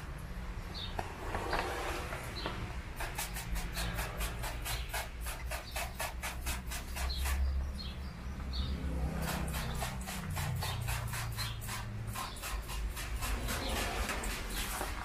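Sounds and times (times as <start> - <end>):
spray bottle squirting: 3.0 - 7.4, 9.3 - 15.0.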